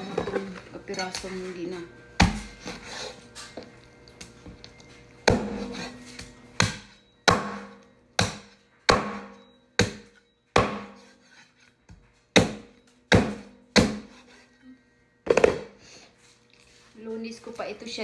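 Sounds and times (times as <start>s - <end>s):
meat cleaver chopping on wooden board: 2.2s - 3.1s, 5.2s - 11.2s, 12.3s - 14.4s.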